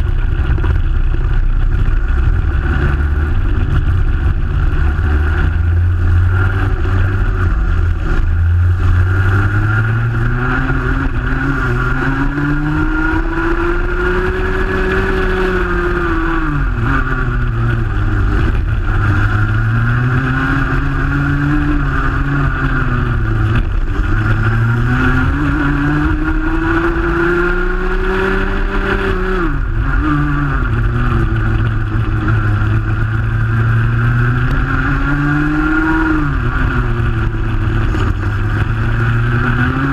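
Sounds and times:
two-stroke kart engine racing: 0.0 - 39.9.

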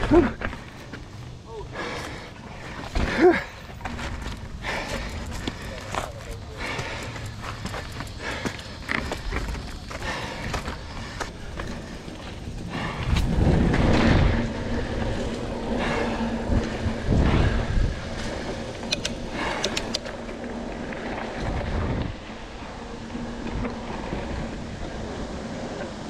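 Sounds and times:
bike ticks and rattles: 0.0 - 26.0
bike tyres rolling over dirt: 0.0 - 26.0
wind gusts on microphone: 7.6 - 26.0.

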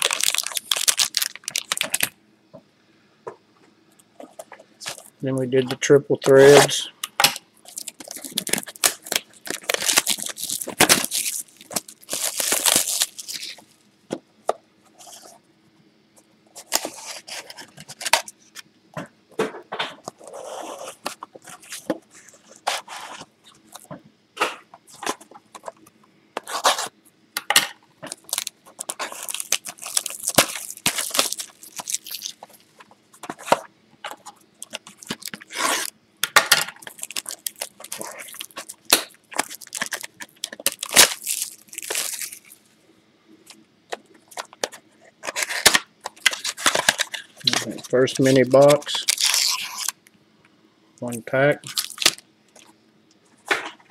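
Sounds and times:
plastic shrink wrap tearing: 0.0 - 2.1, 7.7 - 13.7, 28.1 - 32.7, 34.6 - 35.9, 36.8 - 42.6, 45.2 - 50.0, 51.6 - 52.7.

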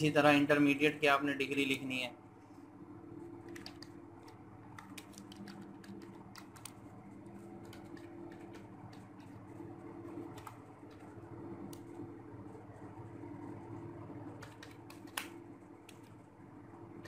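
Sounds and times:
steady low hum: 0.0 - 17.0
keyboard keys clicking: 3.5 - 6.8, 7.6 - 9.4, 10.3 - 11.1, 14.4 - 15.3.

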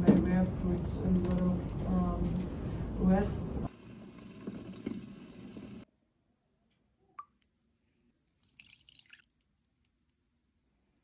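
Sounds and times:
water boiling in a pot: 3.7 - 5.9.

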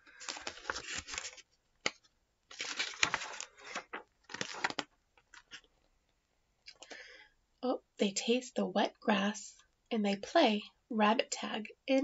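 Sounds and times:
paper pages rustling: 0.0 - 5.7.

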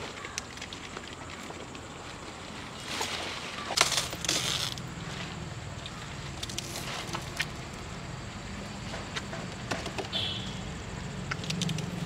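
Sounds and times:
leaves crackling and snapping: 2.7 - 4.9, 5.8 - 7.8, 11.2 - 12.0.

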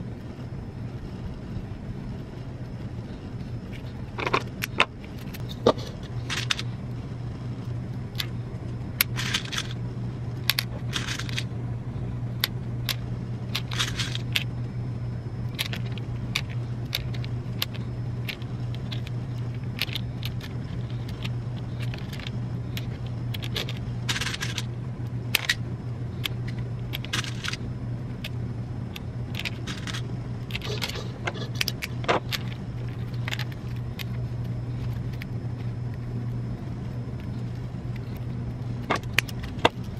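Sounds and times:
steady low hum: 0.0 - 39.9
plastic beads clicking and rattling: 4.2 - 6.7, 9.0 - 9.8, 10.4 - 11.5, 12.3 - 14.5, 15.5 - 24.7, 26.2 - 27.6, 28.2 - 34.2.

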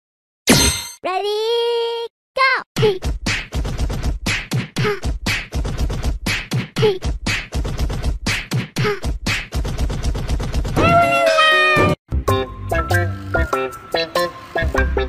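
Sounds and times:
beatboxing vocal percussion: 2.8 - 11.0.

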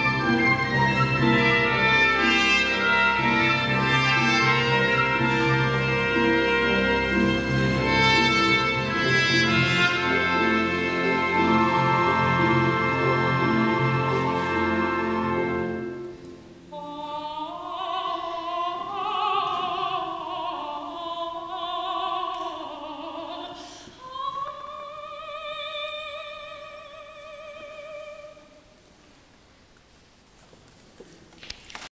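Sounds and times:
orchestral chord: 0.0 - 16.2
soprano singing with vibrato: 16.7 - 28.8.

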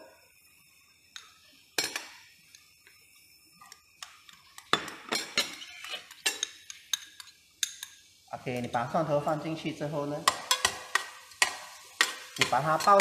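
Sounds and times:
spoon scraping metal pot: 4.3 - 8.0
metal spoon clinking on glass bowl: 4.6 - 8.0.

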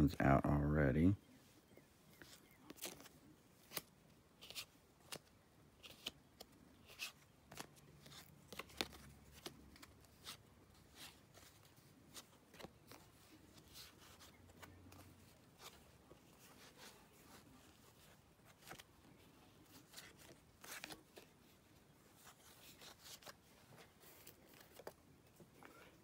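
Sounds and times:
cards clicking and tapping: 2.7 - 10.4.

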